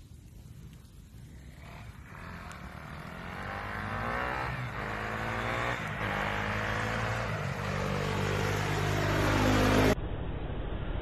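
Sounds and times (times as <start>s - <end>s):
motorcycle accelerating hard: 1.4s - 10.0s.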